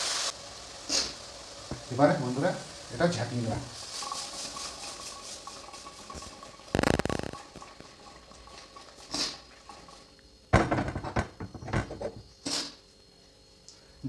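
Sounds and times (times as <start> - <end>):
vegetables rattling in shaken pot: 2.2 - 10.1
pot knocking on metal grate: 10.6 - 12.1.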